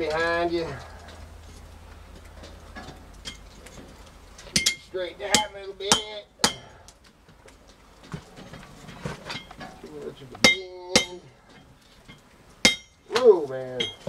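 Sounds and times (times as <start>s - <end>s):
hammer clanging on anvil: 4.6s - 6.8s, 10.4s - 11.3s, 12.6s - 14.0s.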